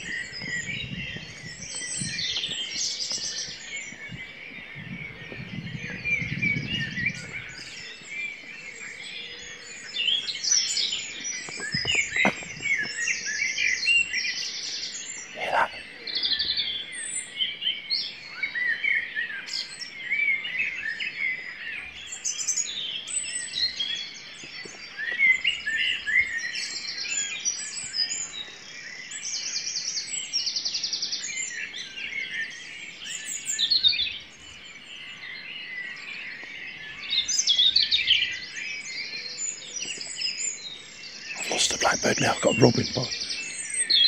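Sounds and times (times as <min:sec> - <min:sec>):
wren trilling: 0:15.2 - 0:15.8, 0:41.3 - 0:43.3
robin singing: 0:31.6 - 0:44.0.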